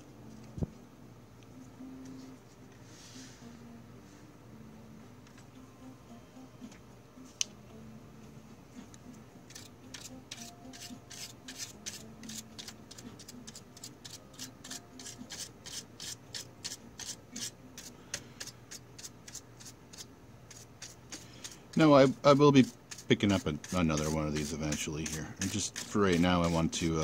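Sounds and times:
stiff brush scrubbing plastic: 21.8 - 27.0.

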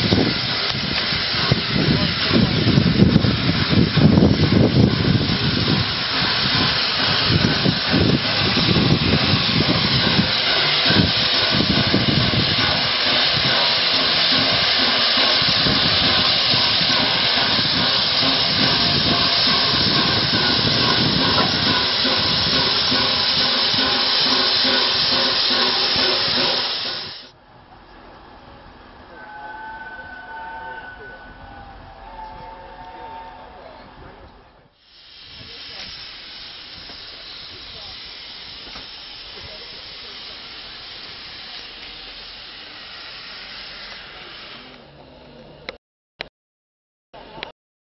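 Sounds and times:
loud hiss of steam: 0.0 - 27.3, 34.7 - 45.0
low rumble of locomotive: 0.0 - 34.7.

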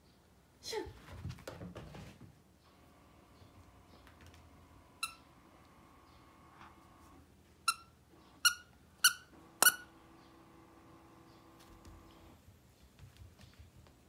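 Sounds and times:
squeaky dog toy squeaking: 5.0 - 5.3, 7.6 - 9.9.

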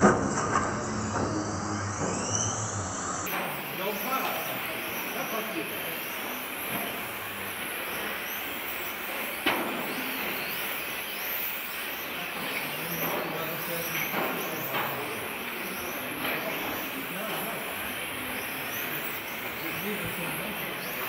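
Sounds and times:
electric motor whine: 0.0 - 9.4
tyres hissing on track: 0.0 - 21.0.

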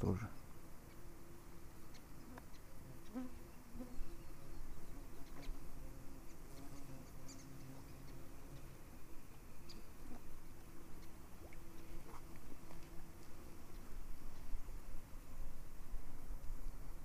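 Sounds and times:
flying insects buzzing: 0.0 - 17.0
faint ticks: 1.9 - 3.2.

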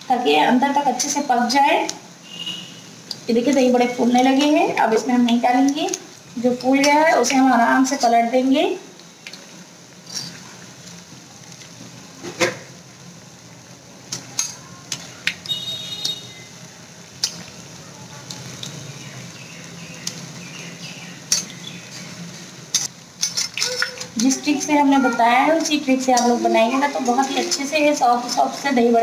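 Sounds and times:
food sizzling in deep oil: 0.0 - 29.0
metal spoon clinking on pan: 25.6 - 26.4.

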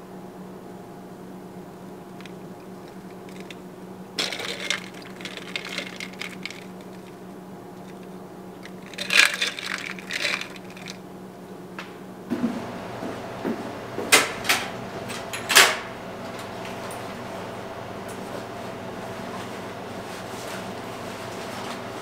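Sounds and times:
ice cubes clinking in a glass: 4.2 - 7.1, 8.6 - 11.0.

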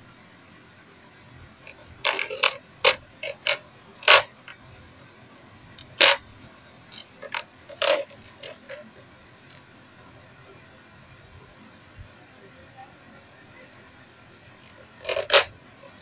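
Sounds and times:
plastic toy car clicks and knocks: 1.7 - 4.6, 5.8 - 6.2, 6.9 - 8.8, 14.6 - 16.0.

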